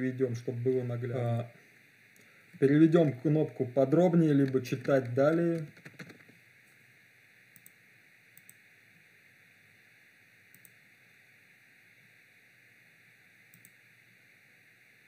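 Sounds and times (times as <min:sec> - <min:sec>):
faint steady hiss: 0:00.0 - 0:15.0
computer mouse clicks: 0:04.4 - 0:06.3, 0:07.6 - 0:07.8, 0:08.4 - 0:08.6, 0:10.5 - 0:10.8, 0:13.5 - 0:13.8.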